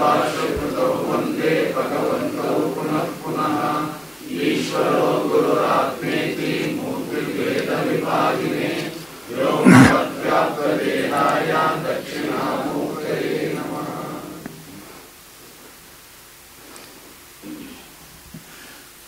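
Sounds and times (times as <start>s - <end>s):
man chanting: 9.6s - 10.0s.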